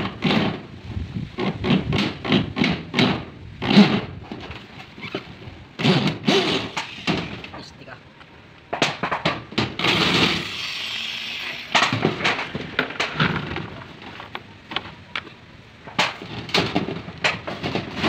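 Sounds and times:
electric drill driving a screw: 0:09.8 - 0:11.8.

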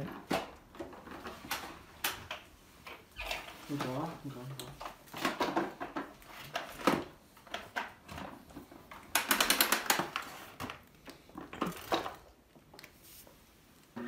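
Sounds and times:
plastic clicks and rattling: 0:04.5 - 0:12.9.

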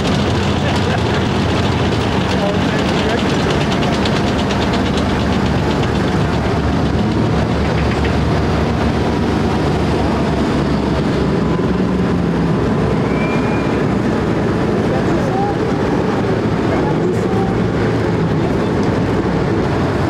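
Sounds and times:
fast rattle: 0:00.0 - 0:09.0
heavy diesel engines passing: 0:00.0 - 0:20.0.

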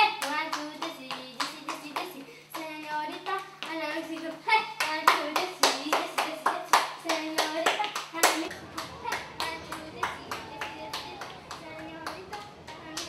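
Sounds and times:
girls chanting rhyme: 0:02.6 - 0:13.0
hands clapping: 0:03.6 - 0:13.0.

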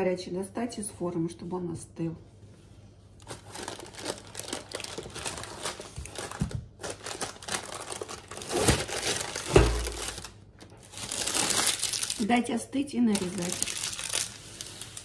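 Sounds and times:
parchment paper crinkling: 0:03.2 - 0:15.0.

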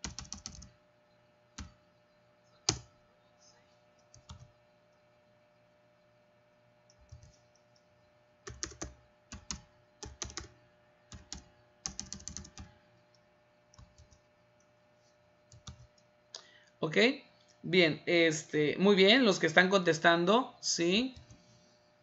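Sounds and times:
computer keyboard typing: 0:00.0 - 0:00.7, 0:02.6 - 0:02.9, 0:04.1 - 0:04.5, 0:06.9 - 0:07.6, 0:08.4 - 0:12.7, 0:13.7 - 0:14.2, 0:15.5 - 0:15.9.

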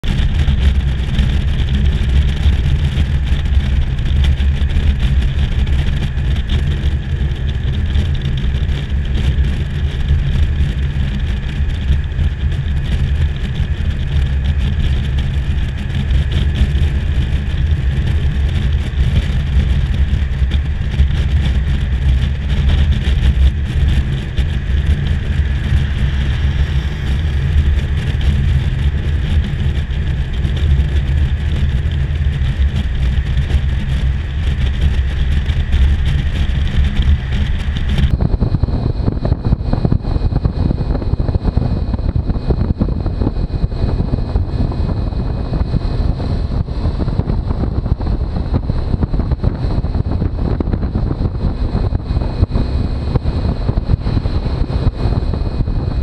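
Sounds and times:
road and wind noise: 0:00.0 - 0:56.0
vehicle engine drone: 0:00.0 - 0:56.0.

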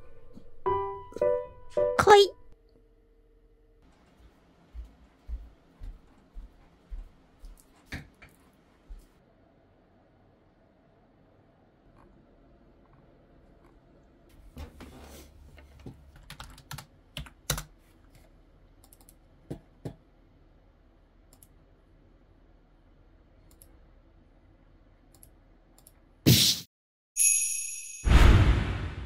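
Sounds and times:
keyboard keys clicking: 0:16.2 - 0:17.7
short loud burst: 0:28.1 - 0:29.0.

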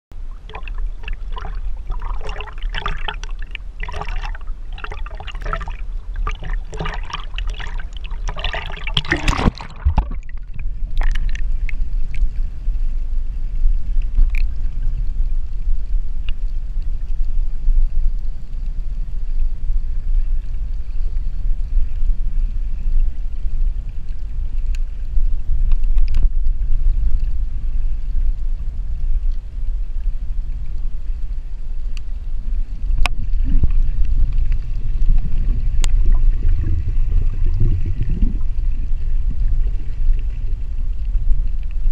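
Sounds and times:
muffled underwater rumble: 0:00.1 - 0:41.9
water sloshing and splashing: 0:00.2 - 0:12.4, 0:33.0 - 0:41.9
faint underwater clicks: 0:00.2 - 0:41.9.

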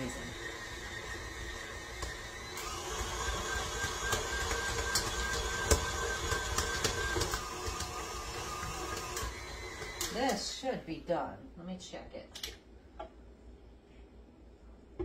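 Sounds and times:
stand mixer motor whine: 0:00.0 - 0:10.4.

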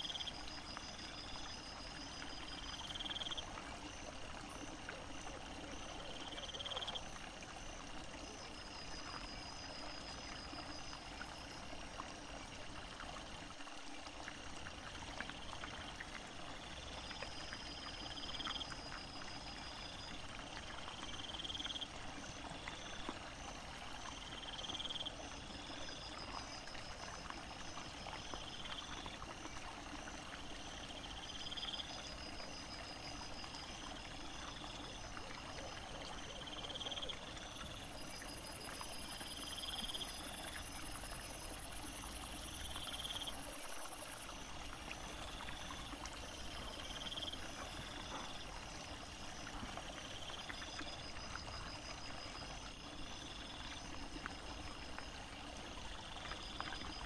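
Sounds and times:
small stream babbling: 0:00.0 - 0:57.0.

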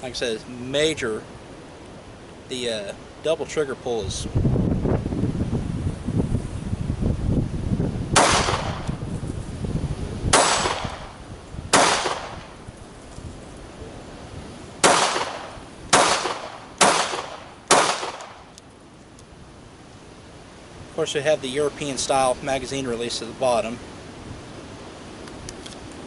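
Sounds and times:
wind rumble on microphone: 0:02.9 - 0:18.5
pistol shots: 0:08.2 - 0:08.9, 0:10.3 - 0:11.1, 0:11.7 - 0:12.5, 0:14.8 - 0:18.4.

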